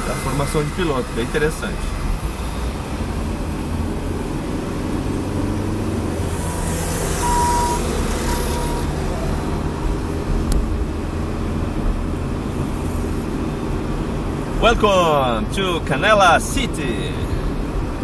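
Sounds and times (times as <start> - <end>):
car engine and road noise: 0.0 - 18.0
truck passing: 0.0 - 18.0
short high beep: 7.1 - 9.5.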